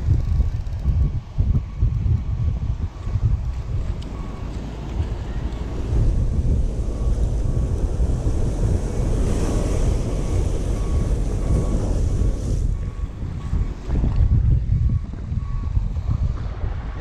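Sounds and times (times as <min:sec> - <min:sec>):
wind buffeting microphone: 0:00.0 - 0:17.0
breaking surf: 0:03.6 - 0:14.1.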